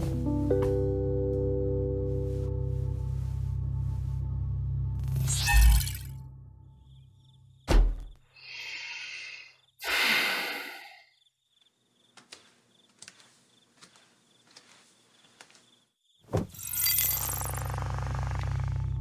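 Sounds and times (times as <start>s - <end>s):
door shutting with heavy thump: 7.7s - 8.2s
long breathy sighs: 8.4s - 11.1s.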